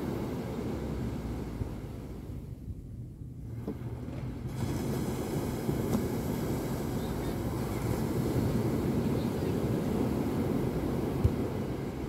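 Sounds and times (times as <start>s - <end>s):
surf washing onto beach: 0.0s - 2.4s, 3.5s - 12.0s
wind rumbling on microphone: 0.0s - 12.0s.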